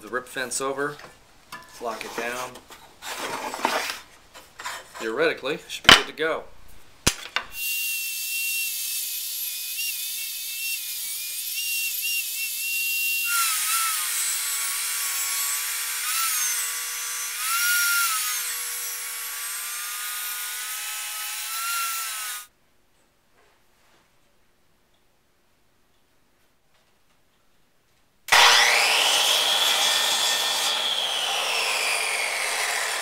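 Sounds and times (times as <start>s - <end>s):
table saw whine and cutting hiss: 28.3s - 33.0s.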